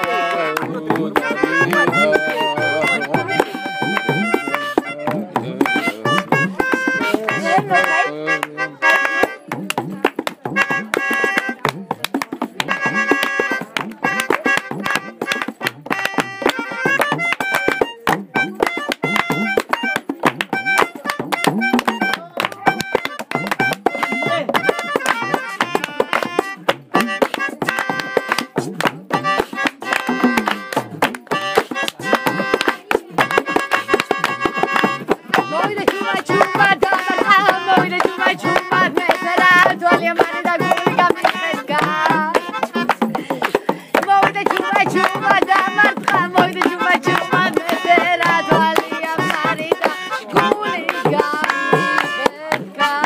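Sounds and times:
melody instrument holding notes: 0.0 - 9.4, 12.6 - 28.5, 29.1 - 53.0
hand drums: 0.0 - 53.0
hand-clapping: 0.0 - 53.0.

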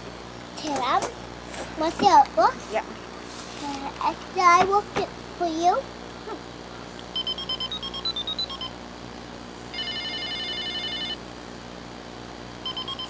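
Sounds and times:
toy telephone beeps: 7.2 - 8.7, 9.8 - 11.2, 12.6 - 13.0
toy telephone warbling ring: 9.8 - 11.2.

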